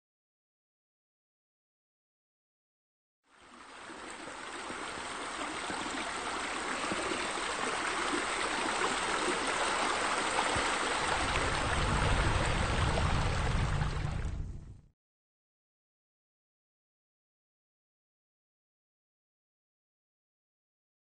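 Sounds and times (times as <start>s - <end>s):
splashing water stream: 3.3s - 14.5s
low rumble: 11.2s - 14.9s.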